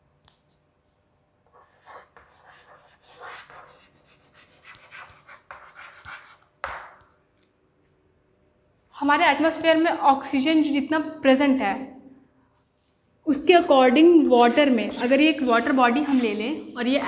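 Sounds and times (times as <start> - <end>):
chalk scratching on blackboard: 1.4 - 6.9, 14.2 - 17.0.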